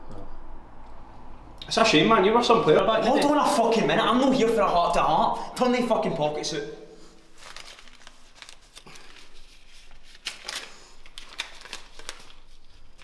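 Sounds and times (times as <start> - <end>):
clothing rustling: 7.1 - 13.0
light clicks and crinkles: 7.4 - 13.0.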